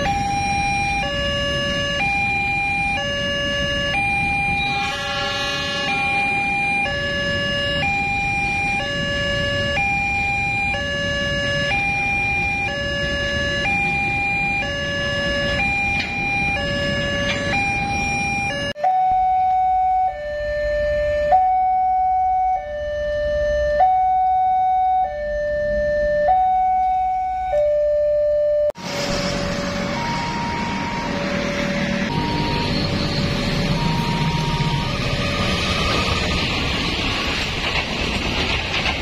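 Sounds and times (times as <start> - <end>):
two-tone level crossing alarm: 0.0 - 36.5
freight train rumbling past: 2.8 - 18.7, 28.8 - 39.0.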